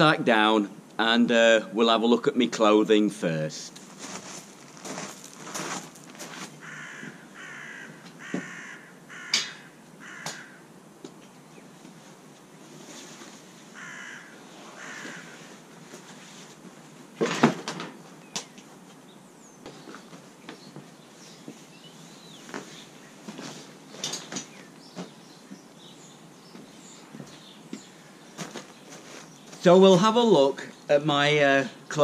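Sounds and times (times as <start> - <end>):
bird harsh cawing: 6.6 - 10.7, 13.7 - 15.5
rucksack set down on paving: 17.2 - 18.0.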